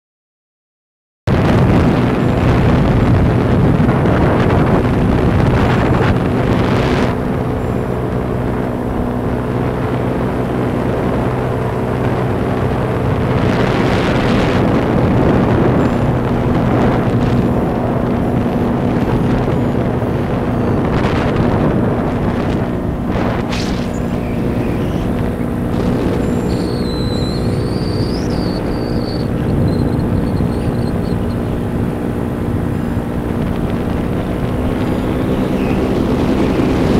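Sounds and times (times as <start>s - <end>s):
paraglider engine droning: 1.3s - 36.9s
wind buffeting microphone: 1.3s - 36.9s.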